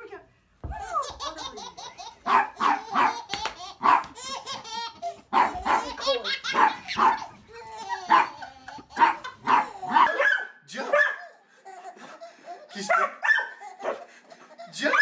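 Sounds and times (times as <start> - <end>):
baby laughing: 0.8 - 10.2, 11.2 - 15.0
small dog barking: 2.3 - 3.2, 3.8 - 4.1, 5.3 - 7.3, 8.1 - 8.4, 9.0 - 11.2, 12.9 - 14.0.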